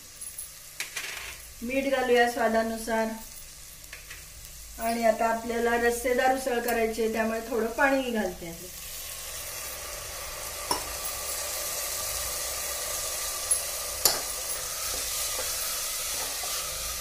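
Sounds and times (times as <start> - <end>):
sizzling hiss in pot: 0.0 - 17.0
metal knocks against pot: 10.7 - 10.9, 14.0 - 14.4.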